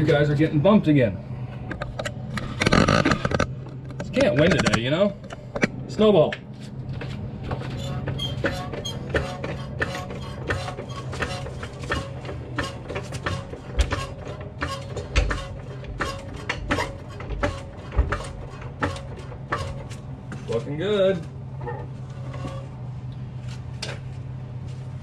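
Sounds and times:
steady low hum: 0.0s - 25.0s
floor jack clicking and clanking: 1.7s - 4.8s, 7.0s - 21.2s.

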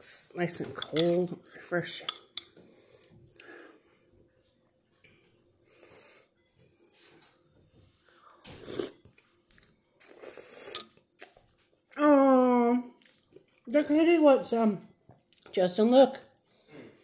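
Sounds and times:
person slurping noodles: 8.5s - 9.0s.

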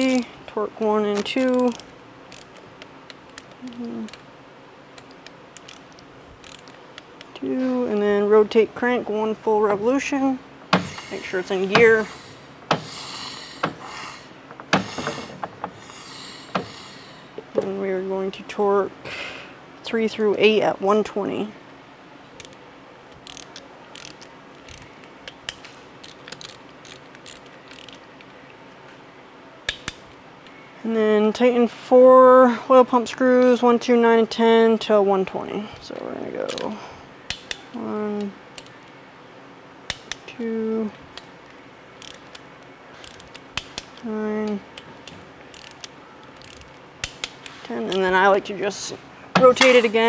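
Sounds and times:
person speaking: 0.0s - 1.8s, 3.6s - 4.2s, 7.3s - 12.4s, 47.6s - 50.0s
torque wrench ratcheting clicks: 1.2s - 4.2s, 5.0s - 7.1s, 22.4s - 28.0s, 42.0s - 42.4s, 43.0s - 44.6s, 45.5s - 48.0s.

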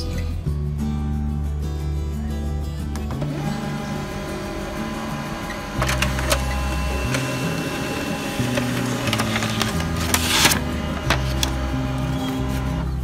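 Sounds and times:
background music with bass line: 0.0s - 13.0s
laser printer running: 3.2s - 12.8s
paper rustle: 7.1s - 12.8s.

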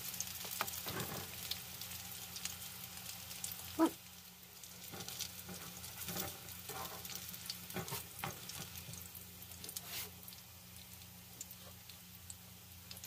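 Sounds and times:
patties sizzling in hot oil: 0.0s - 13.0s
wooden spatula scraping a pan: 4.9s - 9.0s, 9.6s - 10.2s.

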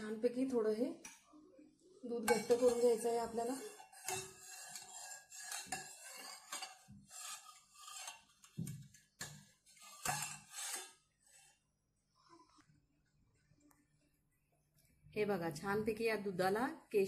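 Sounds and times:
spoon scraping a pan: 2.1s - 11.6s.

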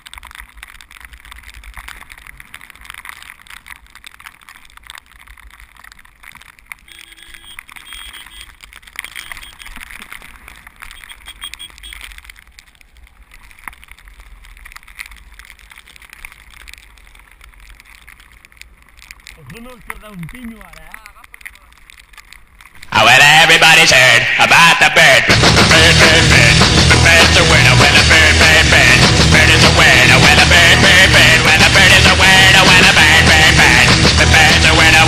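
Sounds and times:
small clicks and scrapes: 0.0s - 22.9s.

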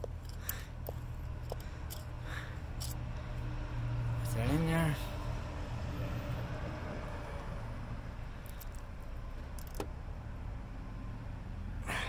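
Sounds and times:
ratchet clicking: 1.2s - 2.1s, 2.7s - 3.0s.

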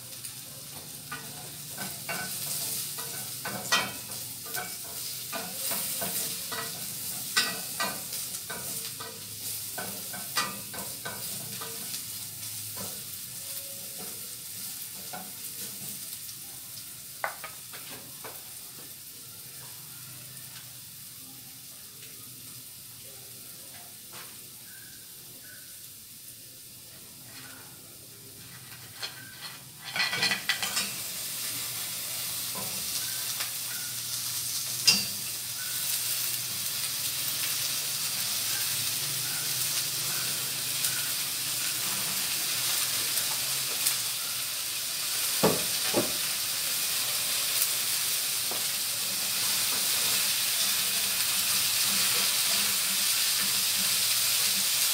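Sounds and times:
food sizzling in a pan: 0.0s - 54.9s
utensils knocking against pan: 0.8s - 12.0s, 28.6s - 31.0s, 34.8s - 35.7s.

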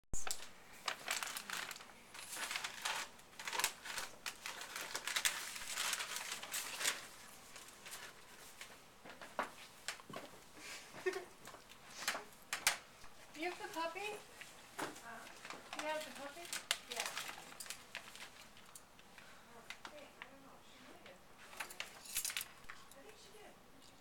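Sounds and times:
wrapping paper crinkling: 0.2s - 10.3s, 11.0s - 20.3s, 21.4s - 22.7s.

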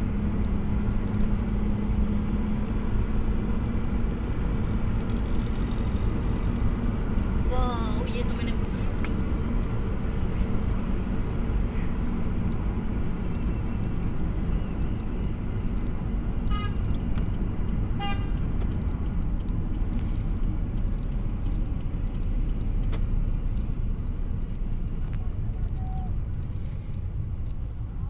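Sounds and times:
road and engine noise in car: 0.0s - 28.0s
car horn toots: 16.5s - 16.8s, 18.0s - 18.4s.

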